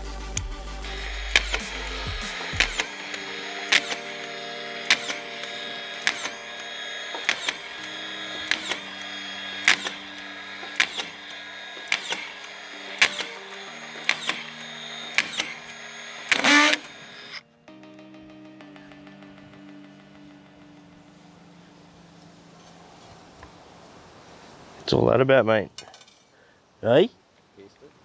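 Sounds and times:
screw gun running: 0:00.8 - 0:17.4
screw feed clicks: 0:00.9 - 0:17.4.

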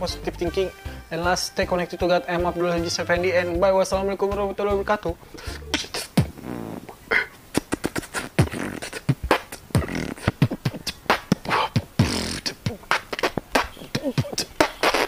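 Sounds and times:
person beatboxing: 0:05.1 - 0:15.0.

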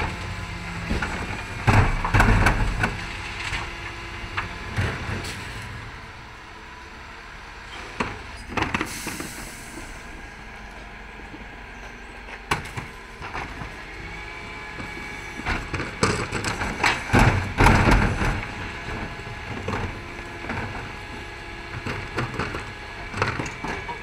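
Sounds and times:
rubbish clattering into hopper: 0:00.0 - 0:03.9, 0:14.8 - 0:24.0
hydraulics: 0:07.6 - 0:24.0.

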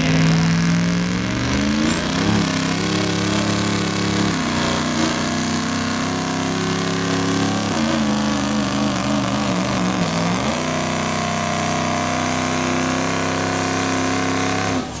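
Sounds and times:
diesel pickup engine under load: 0:00.0 - 0:15.0.

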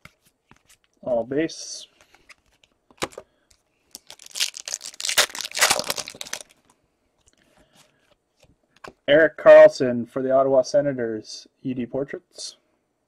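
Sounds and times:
plastic wrapper crinkling: 0:02.1 - 0:06.8.

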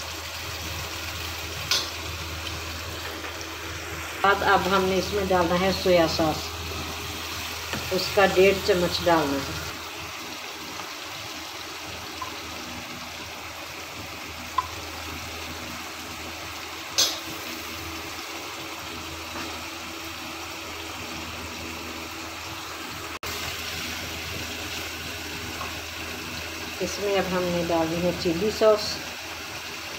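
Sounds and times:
vegetables sizzling in a pan: 0:00.0 - 0:29.9.

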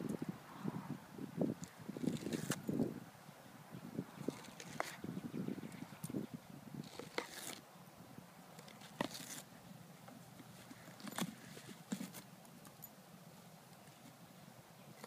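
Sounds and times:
dog crunching coconut husk: 0:01.6 - 0:02.6, 0:06.8 - 0:07.6
scratchy tearing: 0:02.0 - 0:02.6, 0:06.8 - 0:07.6, 0:08.7 - 0:09.5.

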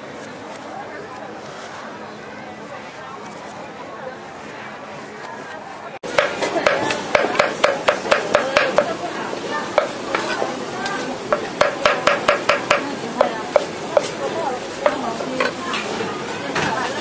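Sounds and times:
cleaver chopping on a steel wok: 0:06.1 - 0:09.0, 0:09.7 - 0:10.5, 0:11.3 - 0:14.2.

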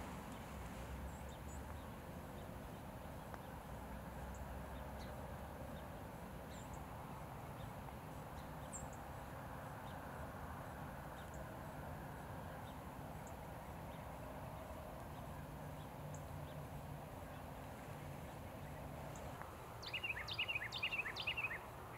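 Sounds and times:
low rumble and hiss: 0:00.0 - 0:21.9
small birds chirping: 0:12.6 - 0:21.9.

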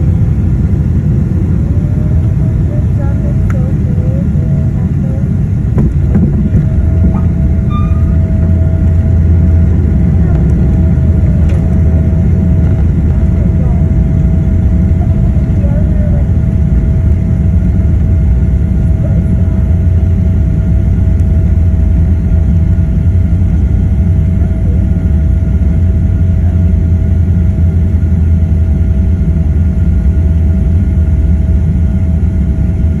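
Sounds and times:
aircraft engines and wheels rumbling: 0:00.0 - 0:33.0
faint steady whine: 0:00.0 - 0:33.0.

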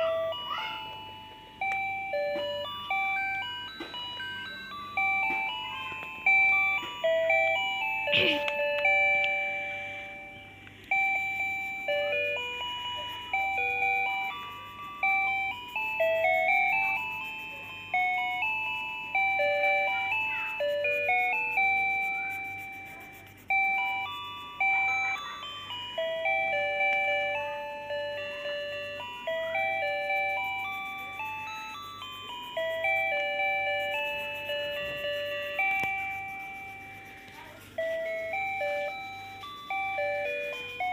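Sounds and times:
electronic chiming tune: 0:00.0 - 0:40.9
felt-tip pen scratching: 0:20.2 - 0:24.0, 0:30.0 - 0:31.7, 0:32.6 - 0:38.8.

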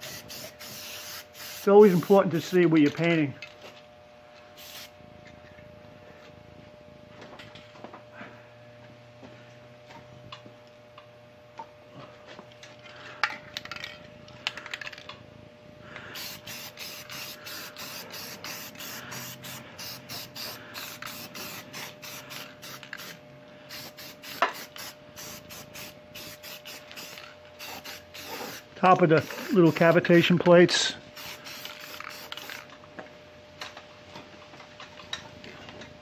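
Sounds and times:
spray can hissing bursts: 0:00.0 - 0:02.1, 0:04.6 - 0:05.0, 0:16.2 - 0:30.0, 0:31.2 - 0:32.7
faint steady hum: 0:00.0 - 0:36.0.

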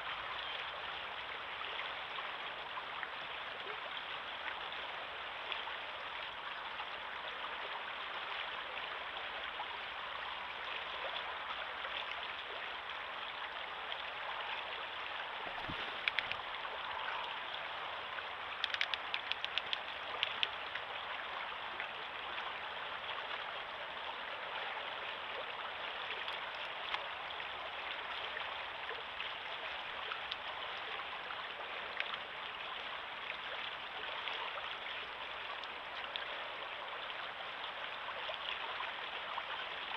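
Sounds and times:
river water rushing: 0:13.7 - 0:39.6
sharp ticks: 0:18.6 - 0:20.5.

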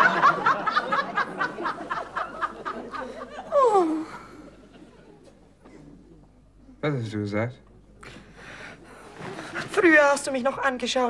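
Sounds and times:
audience laughter: 0:00.0 - 0:03.6, 0:04.2 - 0:05.5.

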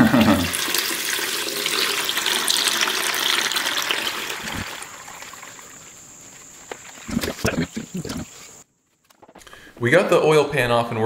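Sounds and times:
oil and water pouring into bucket: 0:00.1 - 0:06.4.

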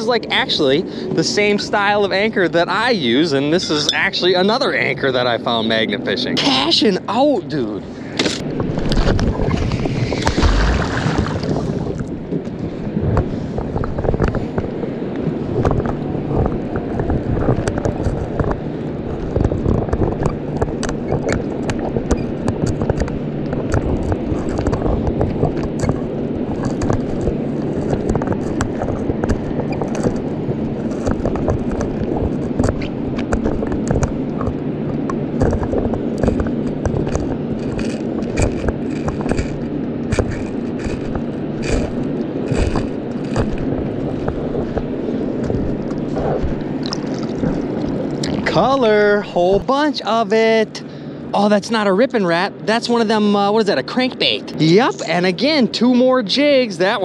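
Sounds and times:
dull underwater rumble: 0:07.8 - 0:48.8
underwater scraping and crackling: 0:08.1 - 0:49.0.

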